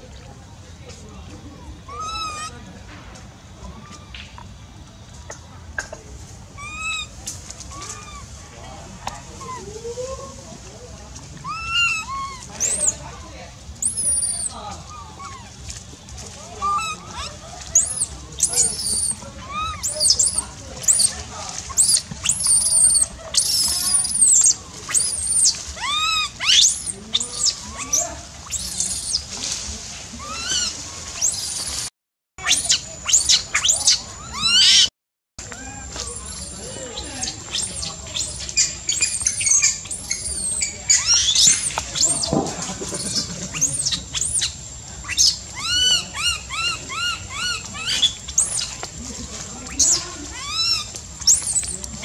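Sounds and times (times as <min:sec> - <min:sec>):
baby monkey screaming: 0:01.9 - 0:02.6, 0:06.6 - 0:08.3, 0:11.4 - 0:13.2, 0:13.8 - 0:15.6, 0:16.4 - 0:29.3, 0:30.2 - 0:48.8, 0:49.6 - 0:52.0.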